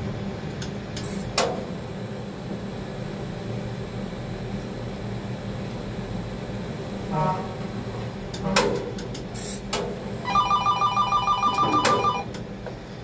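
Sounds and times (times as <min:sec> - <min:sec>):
fast pulsing electronic beep: 0:10.3 - 0:12.3.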